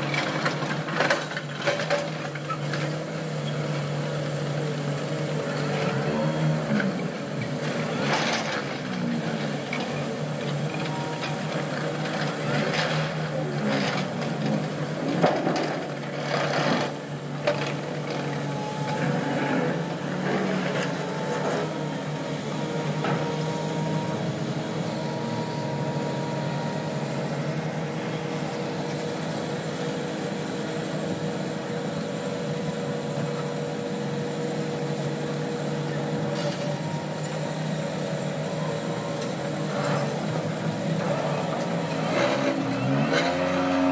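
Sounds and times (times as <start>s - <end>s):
diesel excavator engines running: 0.0s - 43.9s.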